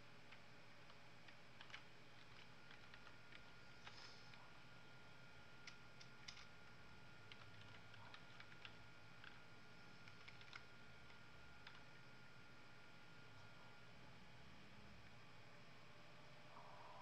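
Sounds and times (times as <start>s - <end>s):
computer keys clicking: 0.3s - 4.4s, 5.6s - 6.6s, 7.3s - 11.9s
faint steady high tone: 16.0s - 17.0s.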